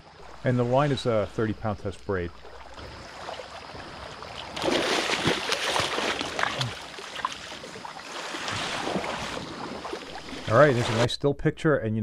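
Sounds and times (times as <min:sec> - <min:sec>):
steady wash of water: 0:00.0 - 0:11.1
water splashing over pebbles: 0:02.3 - 0:11.1.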